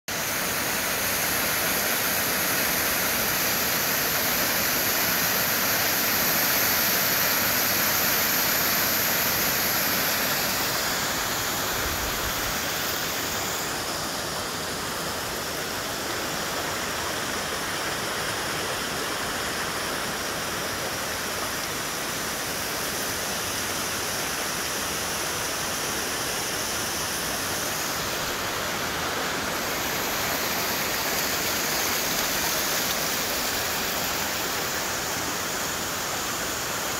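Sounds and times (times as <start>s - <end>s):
waterfall rushing over rocks: 0.1s - 36.9s.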